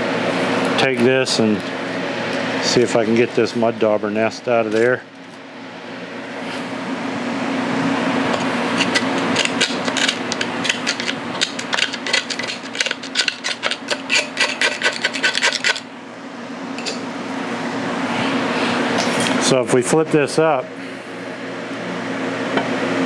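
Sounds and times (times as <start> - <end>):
tool scraping dried nest: 8.8 - 15.8.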